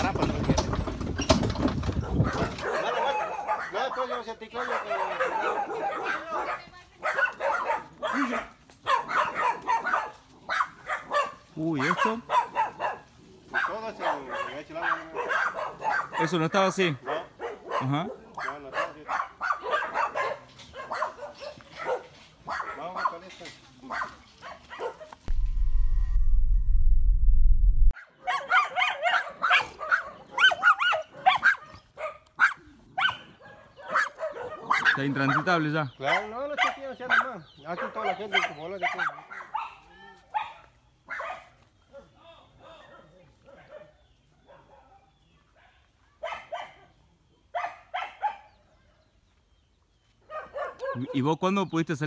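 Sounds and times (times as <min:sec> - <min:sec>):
dog barking: 0:02.2 - 0:25.2, 0:28.0 - 0:48.9, 0:50.2 - 0:51.3
deep pulsing logo sound: 0:25.3 - 0:27.9.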